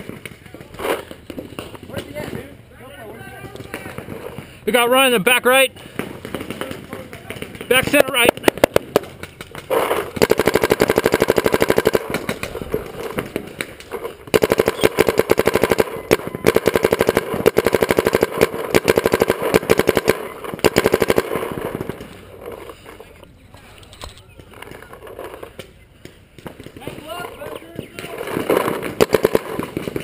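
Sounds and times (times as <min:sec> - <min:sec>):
paintball marker rapid firing: 0:05.8 - 0:22.8, 0:25.5 - 0:30.0.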